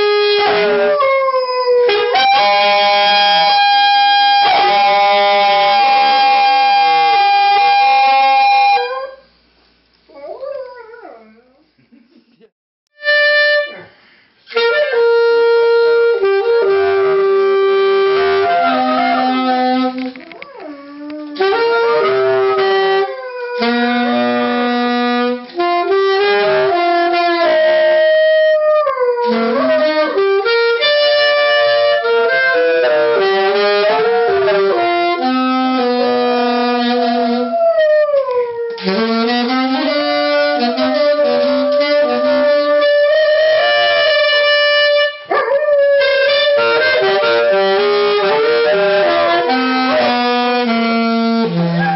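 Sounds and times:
saxophone playing long notes: 0.0s - 9.2s, 12.9s - 20.1s, 21.0s - 51.9s
dog howling: 20.3s - 24.6s, 28.2s - 29.9s, 39.8s - 44.5s, 45.3s - 47.7s, 51.7s - 51.9s.

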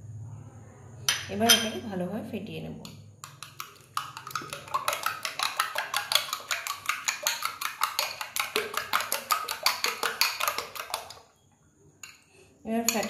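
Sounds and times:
whisk clicking against bowl: 3.2s - 11.2s.

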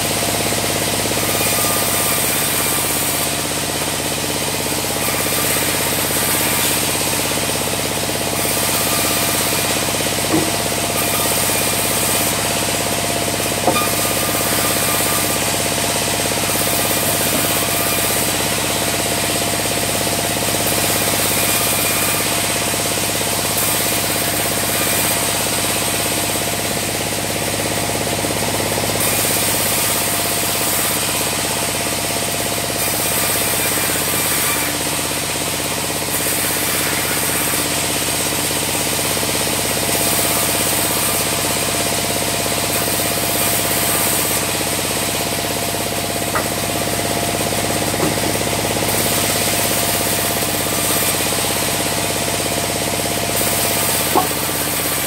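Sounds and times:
band saw cutting logs: 0.0s - 55.0s.

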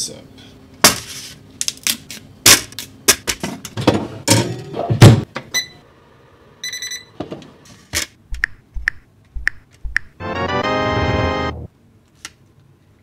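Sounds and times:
oven control panel beeps: 5.5s - 5.8s, 6.6s - 7.2s.

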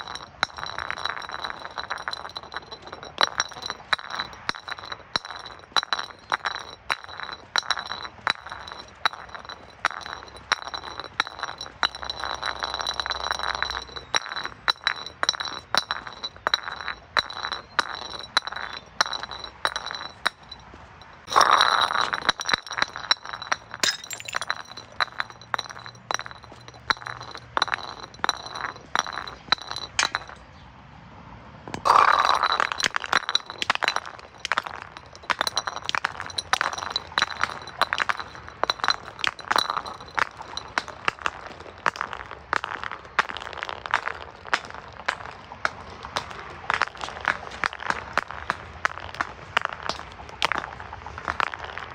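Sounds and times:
glass bottles clinking: 0.0s - 30.5s, 31.9s - 51.9s
glass breaking: 21.2s - 30.4s.

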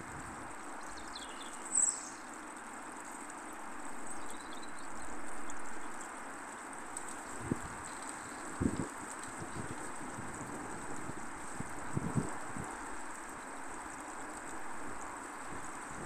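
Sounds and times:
outdoor background noise: 0.0s - 16.0s
bird chirps: 0.9s - 2.2s.

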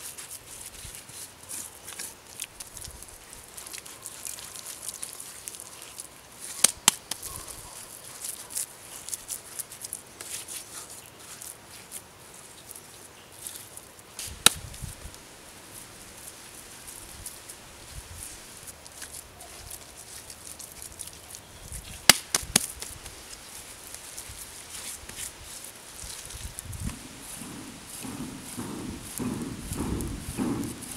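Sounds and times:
hands patting wet mud: 0.0s - 30.9s
sharp knocks: 26.9s - 30.9s.

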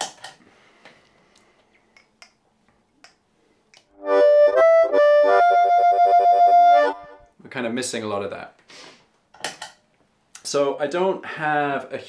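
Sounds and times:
harmonica playing blues chords: 4.0s - 7.3s.

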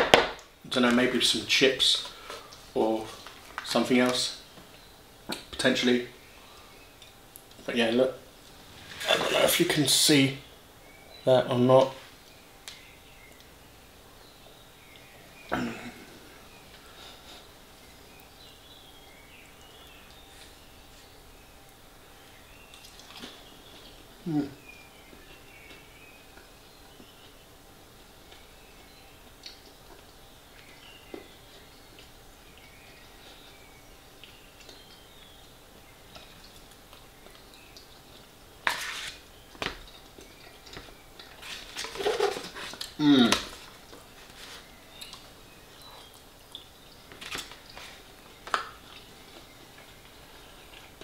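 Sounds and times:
spoon scraping foil tray: 38.7s - 39.2s.

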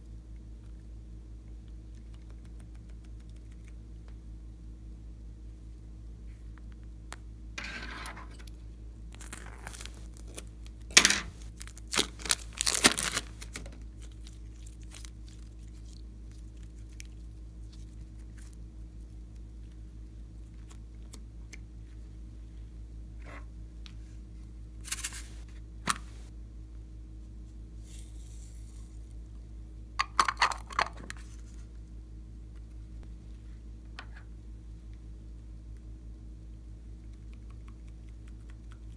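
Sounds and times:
steady low hum: 0.0s - 38.9s
piping bag crinkling: 9.0s - 21.2s.

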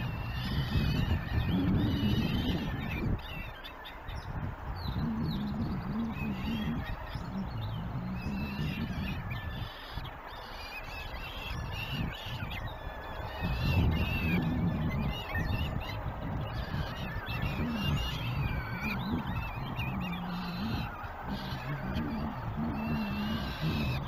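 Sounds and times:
falcon chicks begging calls: 0.0s - 24.0s
steady low rumble: 4.1s - 10.2s, 11.6s - 24.0s.

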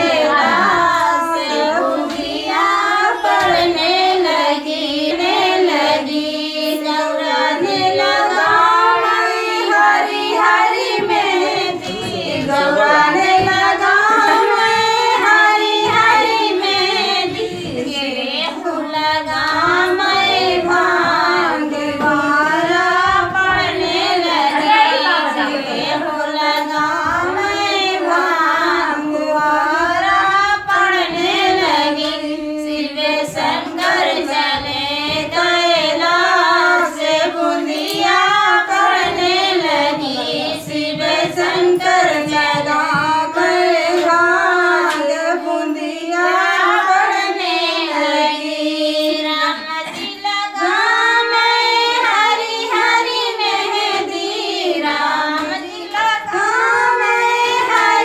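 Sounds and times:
women singing folk song: 0.0s - 58.0s.

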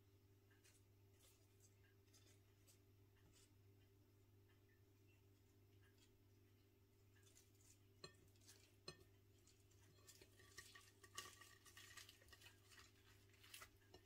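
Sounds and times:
low steady hum: 0.0s - 14.0s
soft crackly rustling: 0.4s - 14.0s
fingers handling rice paper: 0.6s - 3.6s, 7.0s - 14.0s.

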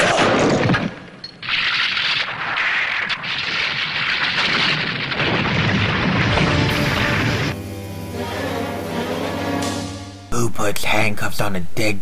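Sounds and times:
thunder rumble: 1.6s - 7.6s
heavy rain falling: 4.4s - 7.6s.

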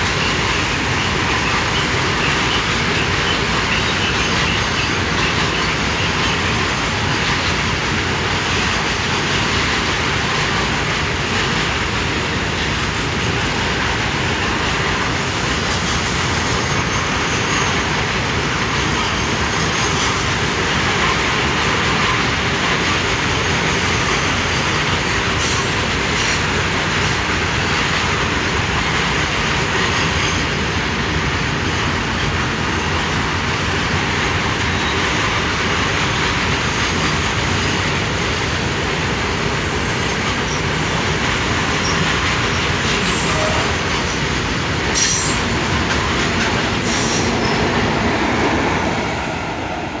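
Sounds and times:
steel wheels rolling on rail: 0.0s - 50.0s.

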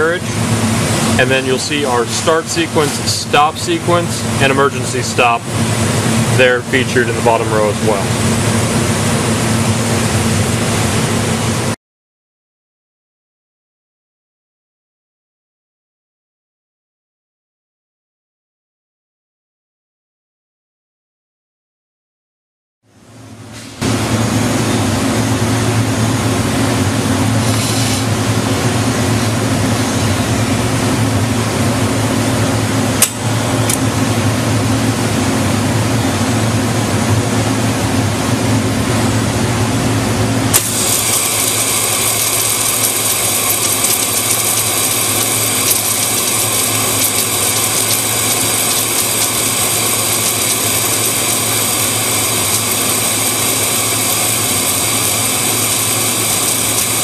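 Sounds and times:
welding machine hum: 0.0s - 11.8s, 23.8s - 57.0s
sharp click: 33.0s - 33.9s.

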